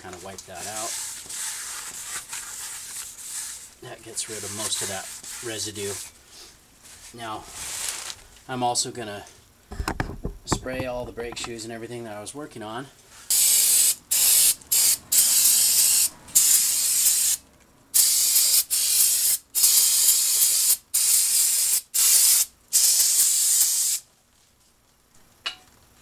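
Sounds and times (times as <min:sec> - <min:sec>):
aerosol can spraying: 0:13.3 - 0:17.4, 0:18.0 - 0:24.0.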